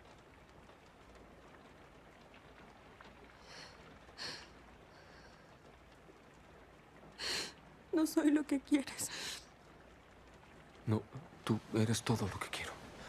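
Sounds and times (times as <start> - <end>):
faint hiss: 1.3 - 13.0
woman breathing softly: 3.4 - 5.7.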